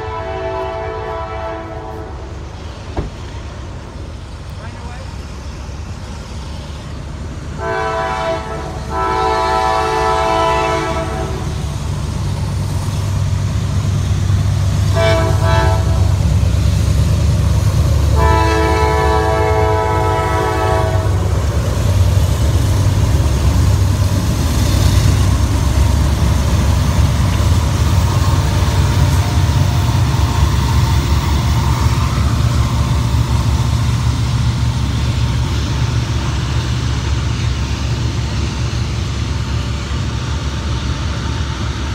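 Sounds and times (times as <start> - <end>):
train air horn blasts: 0.0 - 2.4, 7.6 - 11.6, 14.9 - 16.2, 18.1 - 21.3
diesel locomotive drone: 0.0 - 41.9
train cars rolling over rails: 0.0 - 41.9.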